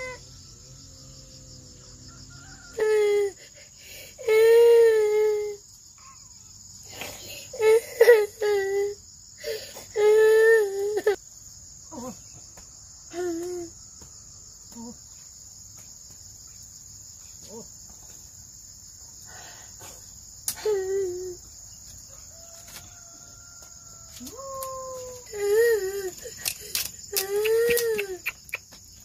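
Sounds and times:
high-pitched insect drone: 0.0s - 29.0s.

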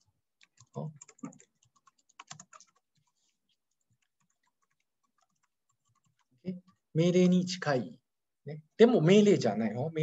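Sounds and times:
typing on computer keyboard: 0.4s - 6.4s.

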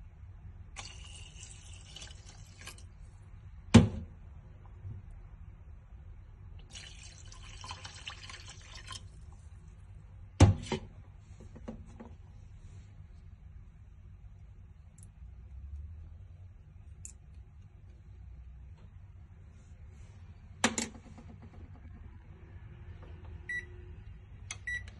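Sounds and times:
water pouring into a pot: 0.8s - 3.0s, 6.6s - 9.2s.

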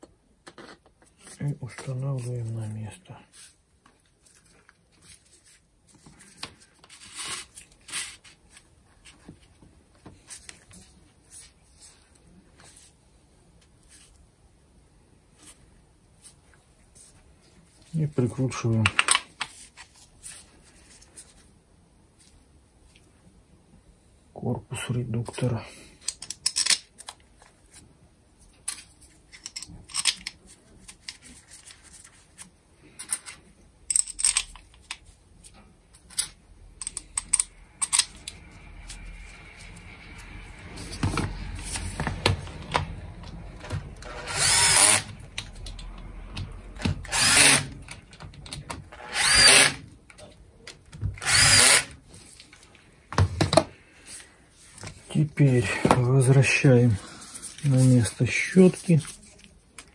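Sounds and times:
clicks of parts handled: 26.0s - 27.2s
cordless driver whining: 43.6s - 45.2s, 46.8s - 47.9s, 48.9s - 49.8s, 51.2s - 51.9s.

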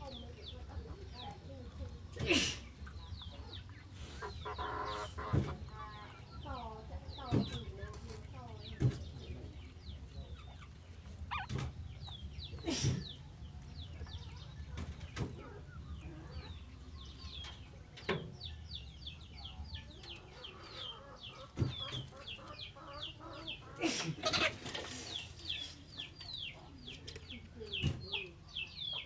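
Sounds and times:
chicks peeping: 0.0s - 29.0s.

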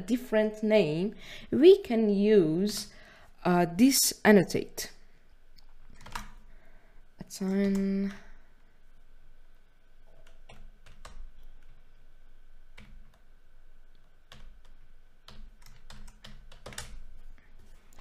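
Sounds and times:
keyboard keys clicking: 14.3s - 17.0s.

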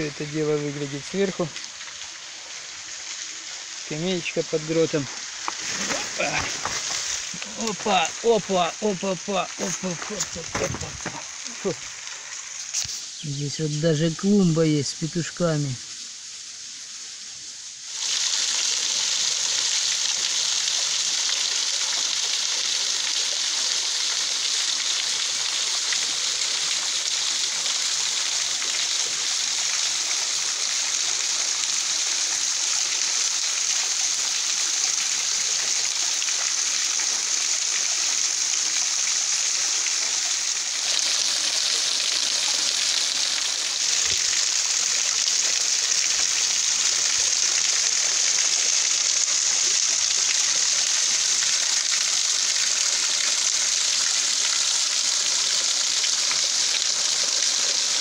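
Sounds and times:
water splashing onto rocks: 0.1s - 13.1s, 38.9s - 49.0s.

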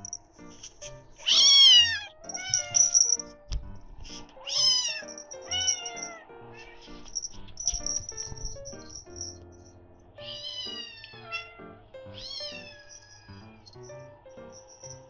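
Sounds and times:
light background music: 0.0s - 15.0s
cat meowing: 1.2s - 3.1s, 4.3s - 7.0s, 10.2s - 13.7s.

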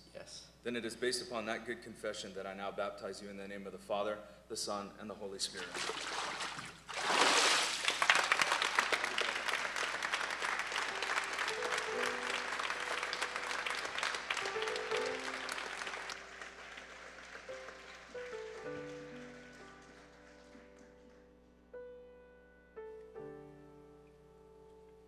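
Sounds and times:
water splashing in a tank: 5.6s - 8.1s
congregation applauding: 5.8s - 21.3s
soft piano notes: 10.8s - 25.0s.

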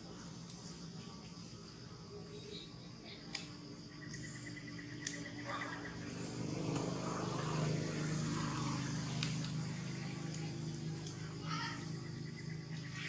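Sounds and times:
low engine hum: 3.9s - 13.0s
sharp clicks: 4.9s - 5.3s.

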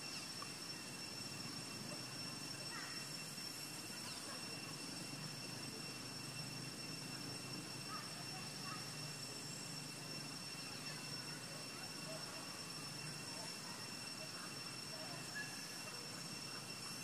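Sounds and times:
high-pitched insect drone: 0.0s - 17.0s
faint bird chirps: 3.9s - 4.6s.

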